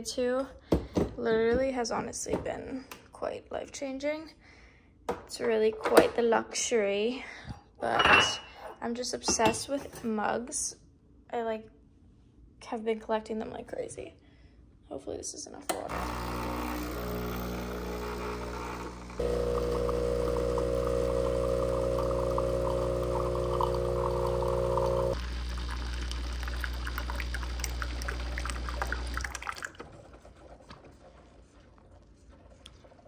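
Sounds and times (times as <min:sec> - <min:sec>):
espresso machine pump buzzing: 0:15.9 - 0:29.7
espresso trickling into mug: 0:15.9 - 0:29.8.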